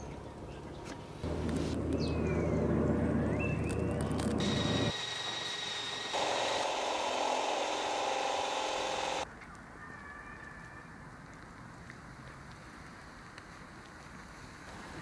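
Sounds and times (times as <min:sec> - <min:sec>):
cordless drill motor running: 0:04.4 - 0:09.2.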